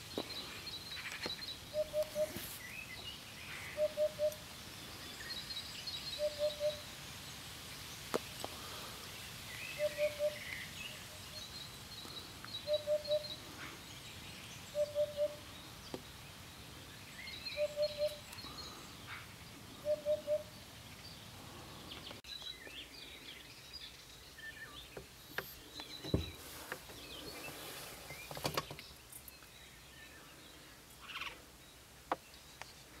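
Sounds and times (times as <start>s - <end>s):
hoopoe hollow song: 0.0s - 7.0s, 9.6s - 11.4s, 12.0s - 13.8s, 14.6s - 15.8s, 17.3s - 20.7s
small birds chirping: 0.0s - 33.0s
thump: 26.0s - 26.4s.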